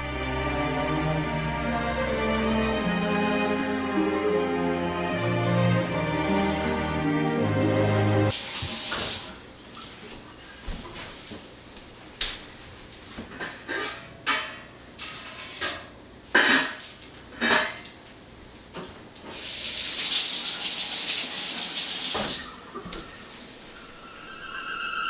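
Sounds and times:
faucet running into sink: 8.3 - 9.5, 19.3 - 22.8
metal pot and lid clanking: 13.4 - 16.8.

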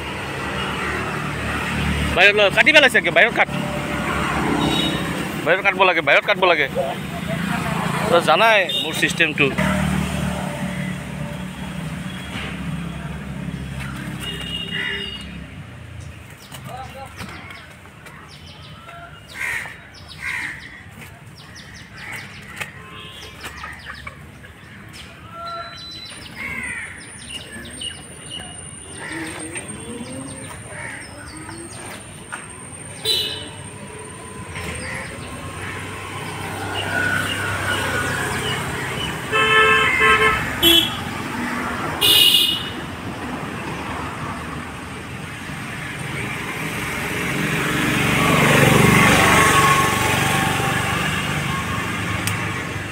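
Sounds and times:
traffic noise: 0.0 - 52.9
birds chirping: 0.2 - 9.6, 10.3 - 50.3
vehicle horns honking: 4.2 - 5.4, 8.4 - 9.9, 14.0 - 15.4, 22.8 - 23.5, 32.8 - 33.8, 36.6 - 41.4, 42.0 - 43.0.

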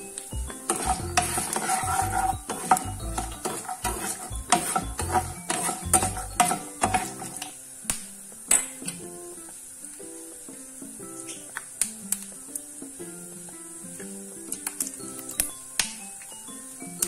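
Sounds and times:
spoon and nuts clinking on pan: 0.0 - 7.6
hot oil sizzling: 0.0 - 17.0
metal spoon scraping a frying pan: 0.5 - 7.6.

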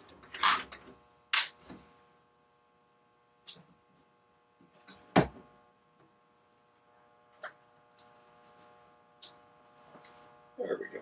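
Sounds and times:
faint steady hum: 0.0 - 11.0
object thump: 5.1 - 5.4.

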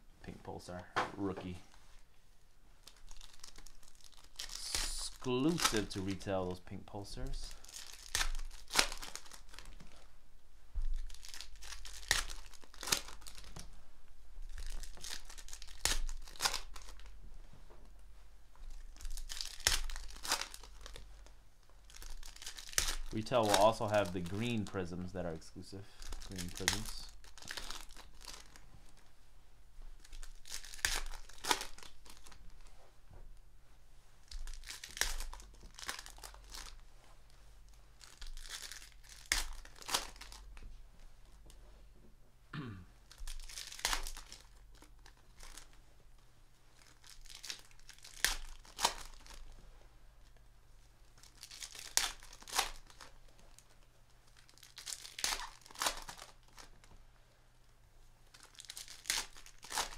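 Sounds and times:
foil wrapper ripping: 2.8 - 6.3, 7.2 - 9.7, 11.0 - 13.7, 14.5 - 17.1, 18.7 - 21.0, 21.8 - 25.1, 26.0 - 28.6, 30.0 - 32.6, 34.3 - 36.8, 38.0 - 40.5, 43.1 - 45.7, 46.8 - 49.5, 51.2 - 56.9, 58.3 - 59.9.

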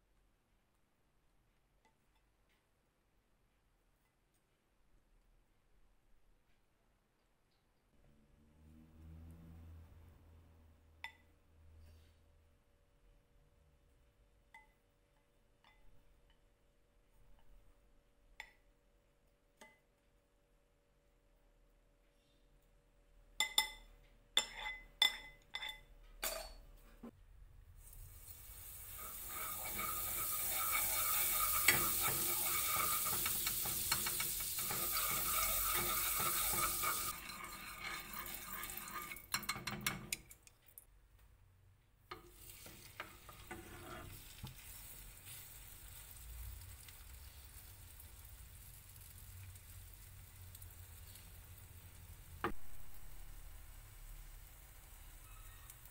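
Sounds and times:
bread frying sizzle: 27.6 - 40.5, 42.1 - 55.9
fat sizzling in frying pan: 27.7 - 40.3, 42.1 - 55.9.

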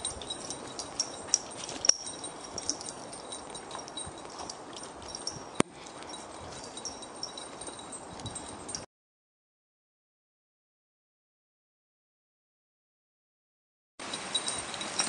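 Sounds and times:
footsteps on woodland path: 0.0 - 8.8
light high ticks and jingles: 0.0 - 8.9, 14.0 - 15.0.

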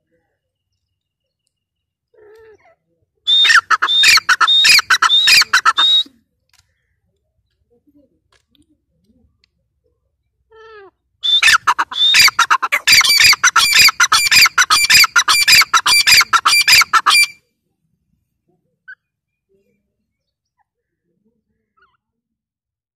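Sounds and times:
bird calling rapid repeated notes: 3.3 - 6.0, 11.2 - 17.4.

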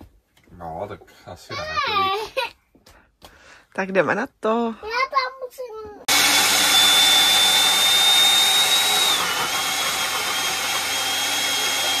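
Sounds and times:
blender motor whine: 6.1 - 12.0.

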